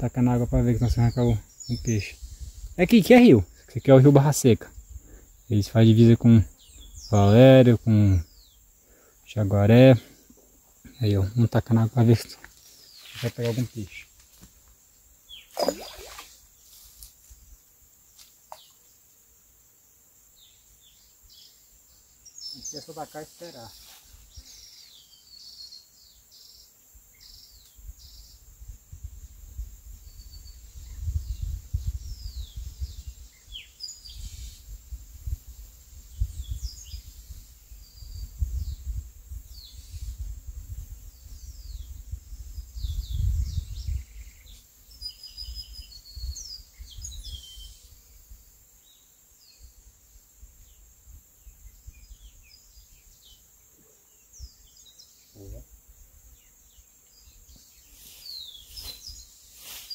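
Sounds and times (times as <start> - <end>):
wind gusts on microphone: 0.0 - 3.6, 27.8 - 48.1
high insect hum: 0.0 - 59.9
small birds chirping: 0.0 - 59.9.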